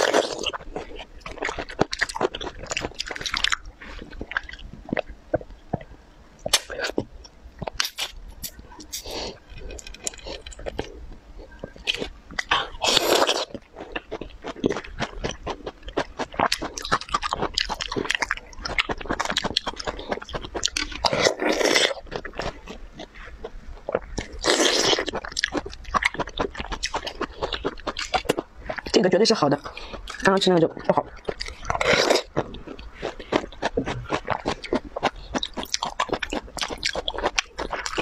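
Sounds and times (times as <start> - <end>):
biting and chewing pears: 0.0 - 29.0, 29.8 - 38.0.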